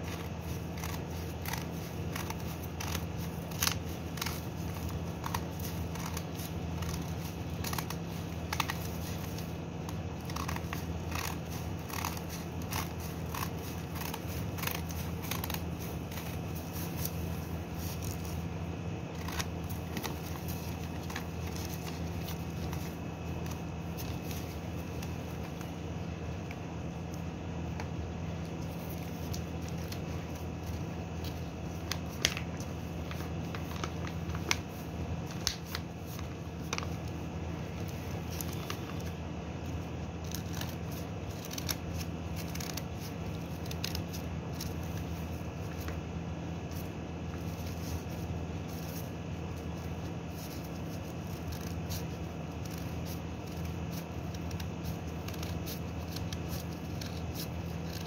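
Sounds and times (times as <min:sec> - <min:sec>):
scissors snipping paper: 0:00.0 - 0:18.5, 0:19.1 - 0:25.8, 0:37.8 - 0:46.0, 0:46.6 - 0:58.0
paper rustling: 0:00.0 - 0:25.8, 0:28.4 - 0:58.0
steady low hum: 0:00.0 - 0:58.0.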